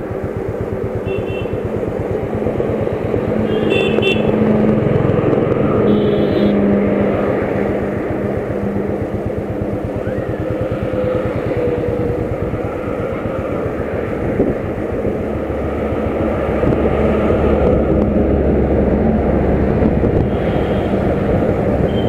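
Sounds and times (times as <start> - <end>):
road and wind noise: 0.0 - 22.0
vehicle engine pulsing: 0.0 - 22.0.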